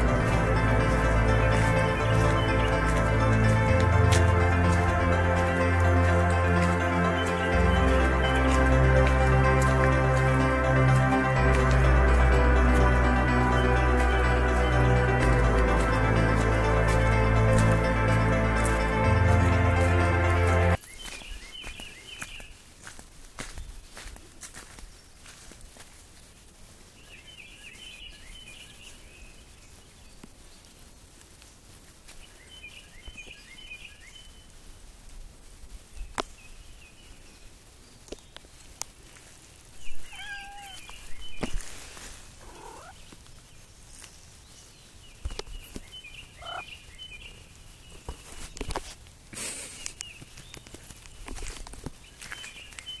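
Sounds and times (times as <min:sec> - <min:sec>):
songbird trilling: 0:39.8 - 0:41.5, 0:45.6 - 0:47.2
cat meowing: 0:40.0 - 0:40.9, 0:42.4 - 0:43.0.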